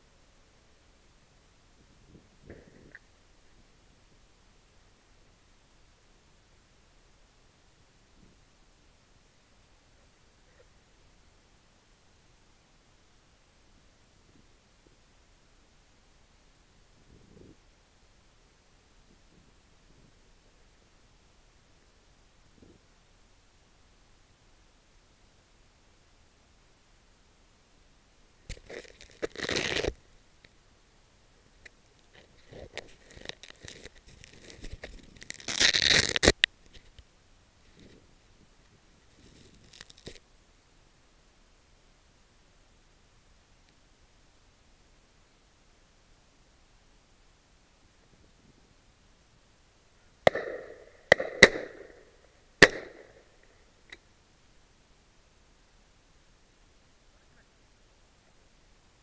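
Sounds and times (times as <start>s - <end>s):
rubbing on microphone: 17.0s - 17.6s, 28.5s - 30.0s, 32.0s - 37.0s, 38.7s - 40.2s
faint click: 43.6s - 43.8s
shotgun shots with echo: 50.3s - 52.0s, 52.6s - 53.0s.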